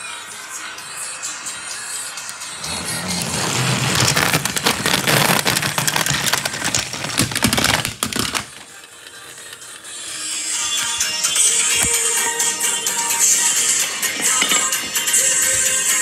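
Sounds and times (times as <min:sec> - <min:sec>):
toy trains clattering on track: 0:14.0 - 0:16.0.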